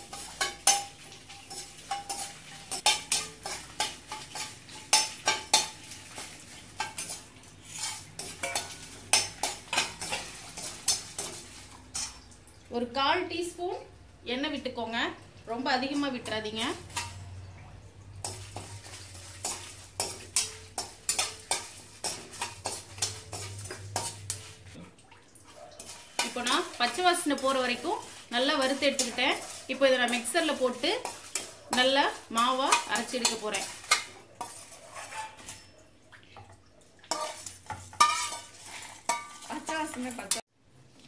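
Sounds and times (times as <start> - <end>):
spatula scraping spices in a pan: 0.0 - 12.3, 18.2 - 24.8, 25.8 - 35.8, 37.1 - 40.4.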